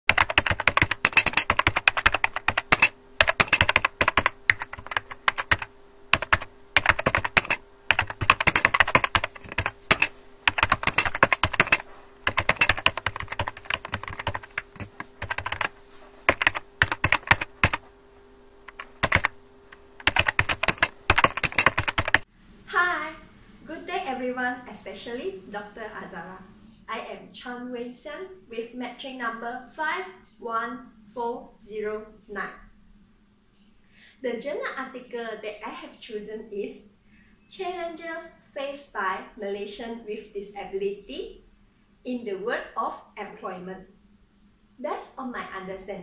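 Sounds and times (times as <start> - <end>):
keyboard typing clicks: 0.1 - 15.7, 16.3 - 17.8, 18.7 - 19.3, 20.0 - 22.2
faint steady hum: 0.1 - 46.0.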